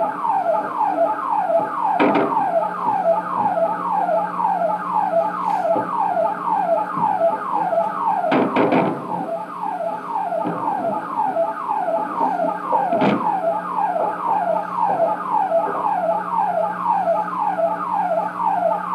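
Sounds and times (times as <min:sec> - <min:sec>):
electronic siren sweeping: 0:00.0 - 0:18.9
sharp knocks: 0:01.6 - 0:03.8, 0:06.6 - 0:09.4, 0:10.3 - 0:16.0.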